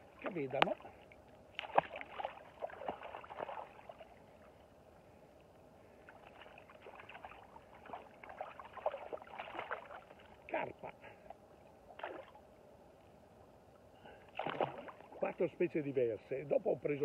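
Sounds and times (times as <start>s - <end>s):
fish splashing into water: 1.5s - 4.0s, 6.1s - 10.1s, 14.3s - 15.2s
net sloshing in water: 1.6s - 4.1s, 6.1s - 10.3s, 14.3s - 15.3s.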